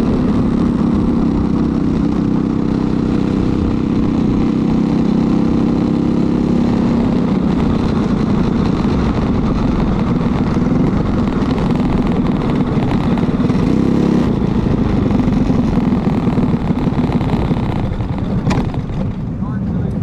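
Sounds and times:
kart engine running: 0.0s - 20.0s.

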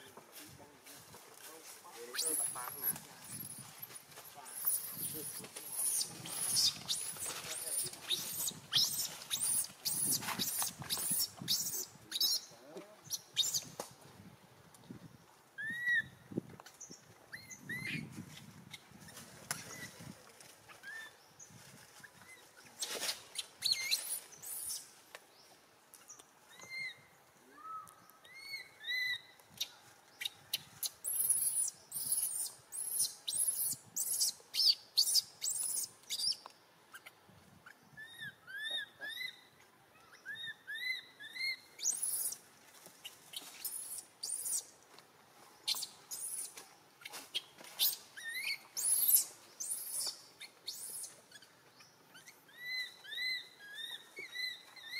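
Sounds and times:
high-pitched animal chirps and squeaks: 4.6s - 12.5s, 30.8s - 36.4s, 40.0s - 42.4s, 43.3s - 44.6s, 45.7s - 46.5s, 47.3s - 51.5s, 52.1s - 54.9s.

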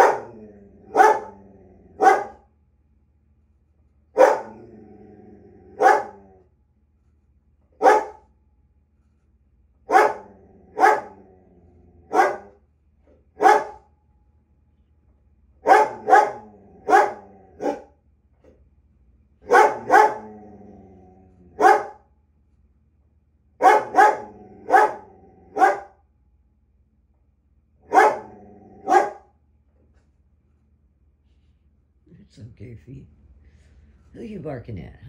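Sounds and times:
dog barking: 0.0s - 1.4s, 2.0s - 2.4s, 4.2s - 4.6s, 5.8s - 6.2s, 7.8s - 8.3s, 9.9s - 11.2s, 12.1s - 12.6s, 13.4s - 13.9s, 15.6s - 17.9s, 19.4s - 20.3s, 21.6s - 22.0s, 23.6s - 26.0s, 27.8s - 29.3s.

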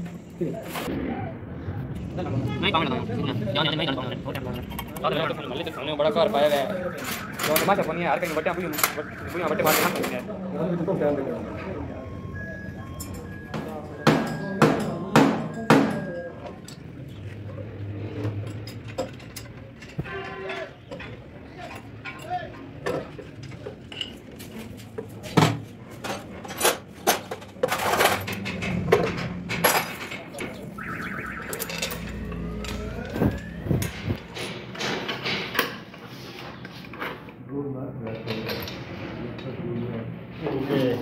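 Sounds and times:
metal clanks ringing: 12.9s - 17.0s, 26.7s - 30.9s
hand tools knocking on metal: 13.2s - 16.8s
faint rising whine: 30.7s - 34.6s.

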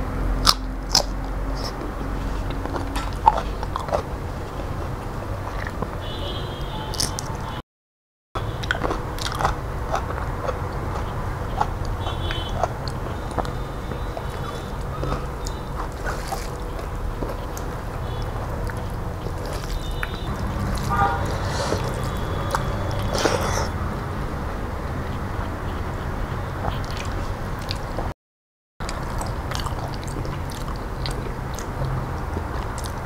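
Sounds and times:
crunching and chewing: 0.4s - 6.0s, 6.9s - 7.4s, 8.4s - 24.2s, 24.8s - 28.1s, 28.8s - 33.0s
steady low hum: 8.4s - 28.1s
wet squishy eating by hand: 8.6s - 24.1s, 24.9s - 28.1s, 28.8s - 33.0s.

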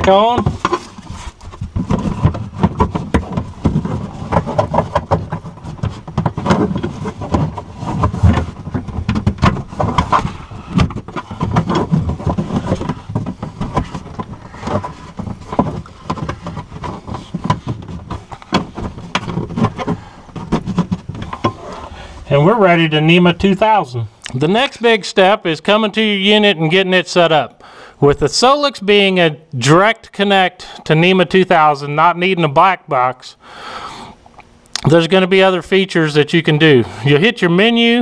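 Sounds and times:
plastic cover knocking: 0.0s - 21.6s.

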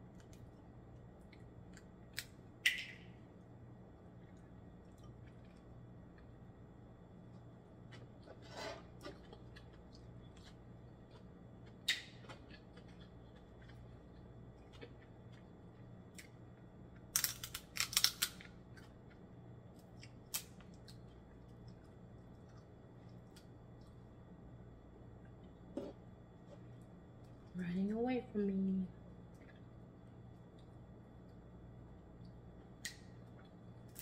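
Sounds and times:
crab shells cracking: 17.0s - 18.6s, 20.3s - 21.0s.

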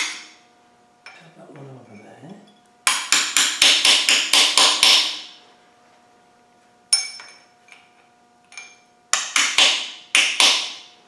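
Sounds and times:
hammer tapping metal: 2.8s - 5.4s, 8.5s - 10.8s
ringing metal clink: 6.9s - 7.5s, 8.5s - 8.9s.

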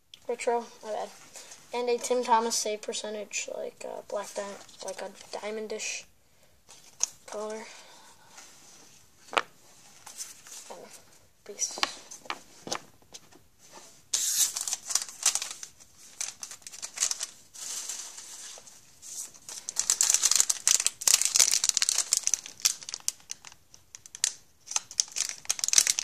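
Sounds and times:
card pack wrappers crinkling: 14.2s - 26.0s.

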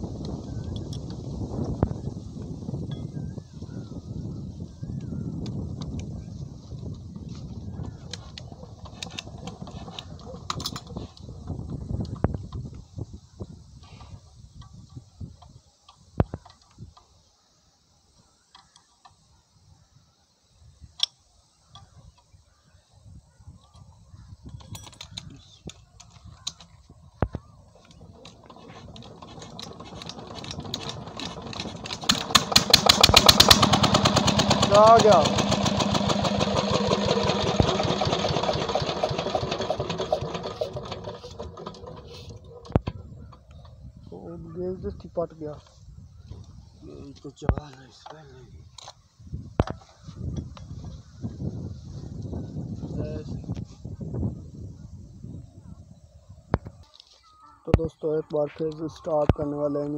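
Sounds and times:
metallic clicks and knocks: 24.5s - 26.8s
handling noise: 24.5s - 43.8s
diesel engine running down: 28.1s - 42.8s.

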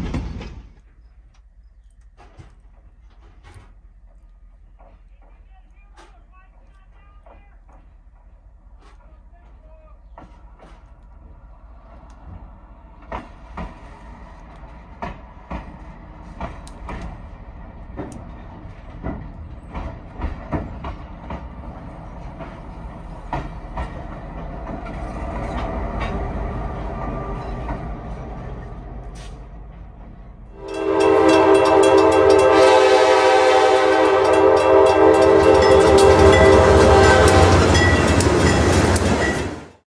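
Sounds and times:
locomotive engine rumble: 0.0s - 39.8s
train wheels clacking over rail joints: 0.0s - 39.8s
locomotive air horn: 30.6s - 38.2s.

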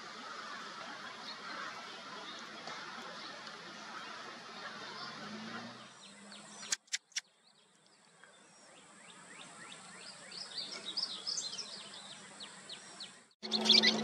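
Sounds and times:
bird chirping and chattering: 5.9s - 7.3s, 13.4s - 14.0s
sharp clicks: 6.6s - 7.2s.

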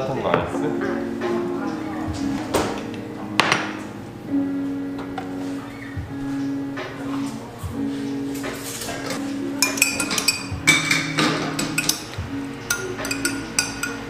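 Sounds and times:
soft background music: 0.0s - 14.0s
glass and ceramic clinking: 8.9s - 14.0s.

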